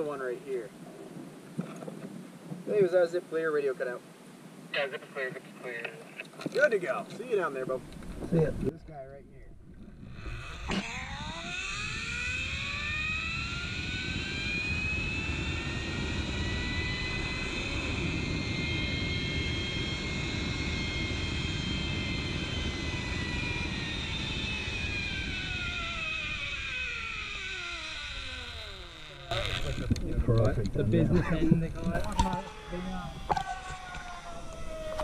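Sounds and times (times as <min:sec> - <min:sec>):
wind rushing over microphone: 0:07.8 - 0:27.5, 0:29.3 - 0:35.0
zip line pulleys whining on cable: 0:09.8 - 0:30.0, 0:31.8 - 0:35.0.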